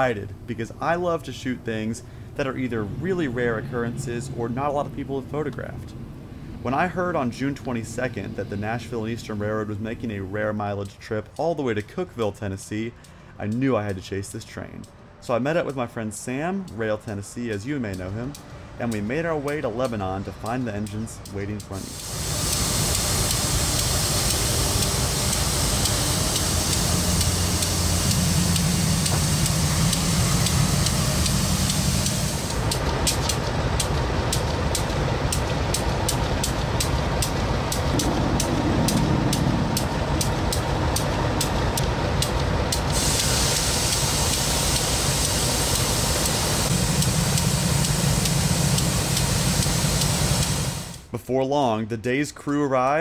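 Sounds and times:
loud hiss: 0.0 - 5.0, 21.8 - 51.1
diesel locomotives idling: 0.0 - 51.1
fast even ticking: 6.7 - 51.0.

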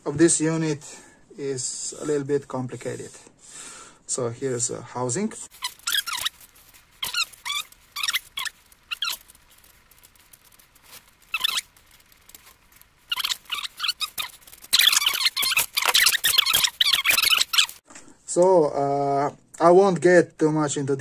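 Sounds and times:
marker squeaking on paper: 5.5 - 17.8.

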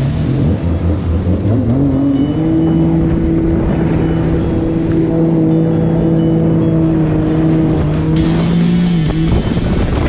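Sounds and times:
jet ski engine revving: 0.0 - 10.0.

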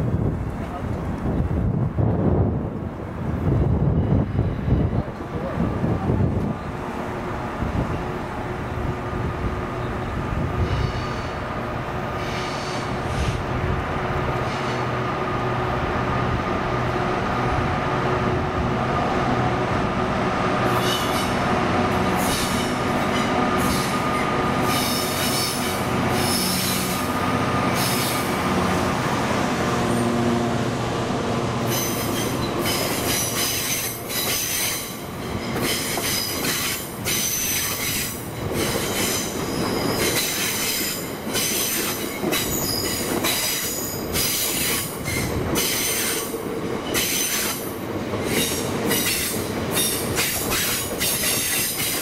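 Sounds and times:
diesel locomotive droning: 0.1 - 52.0
wheel squeal: 31.7 - 46.2.

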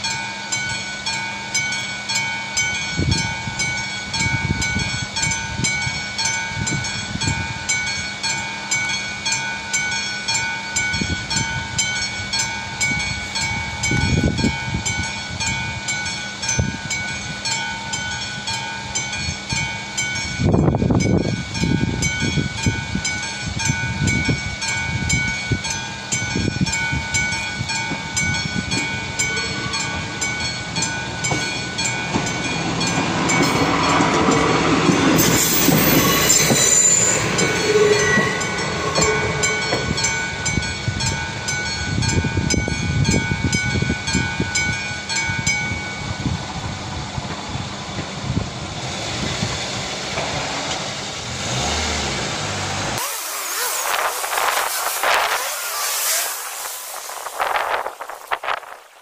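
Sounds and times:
diesel train passing: 0.0 - 59.0
level crossing bell ringing: 35.2 - 46.1.

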